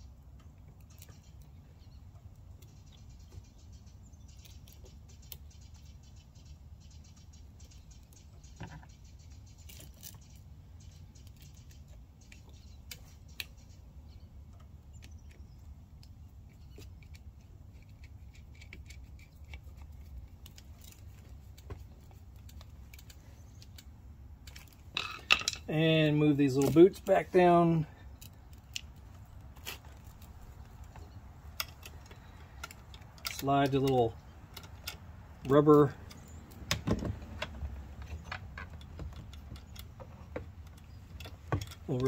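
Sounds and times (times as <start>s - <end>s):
metallic clicks of tools on bolts: 30.8s - 36.8s.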